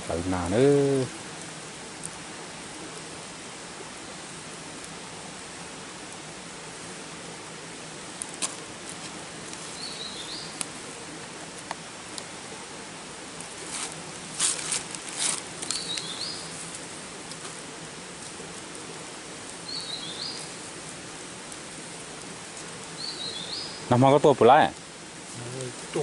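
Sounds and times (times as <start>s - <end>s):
outdoor hiss: 0.0s - 26.0s
rustling and crackling: 7.8s - 26.0s.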